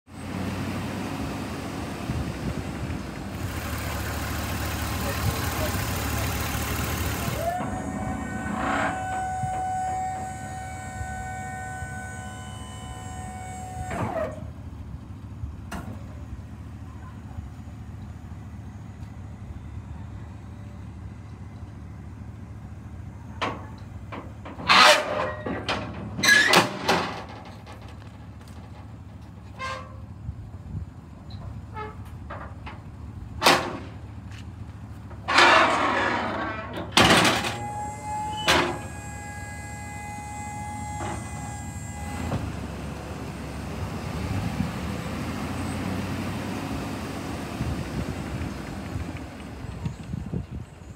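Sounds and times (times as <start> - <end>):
hydraulic pump whining: 3.4 - 14.6, 35.2 - 42.9.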